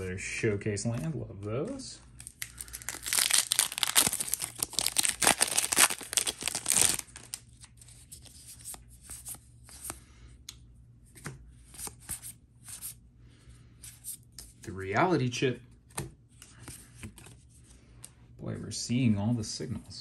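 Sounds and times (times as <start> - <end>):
foil wrapper tearing and crinkling: 2.2 - 7.4
cards clicking and rustling: 2.2 - 7.5.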